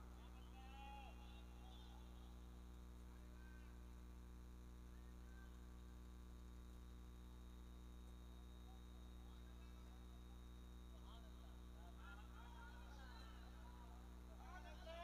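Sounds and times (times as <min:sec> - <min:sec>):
low electrical mains hum: 0:00.0 - 0:15.0
faint voices: 0:10.9 - 0:15.0.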